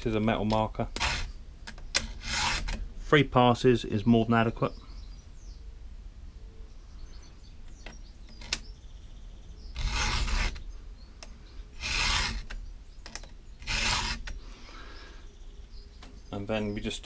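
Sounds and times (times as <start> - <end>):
file rasping on steel: 1.0 - 1.4, 2.0 - 2.8, 9.8 - 10.6, 11.8 - 12.6, 13.6 - 14.4
sharp clicks: 7.7 - 8.7.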